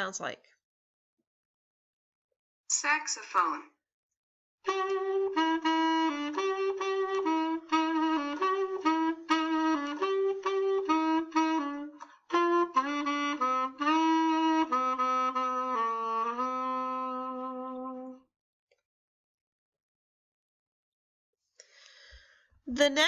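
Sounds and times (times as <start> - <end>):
solo saxophone melody: 4.6 - 18.3.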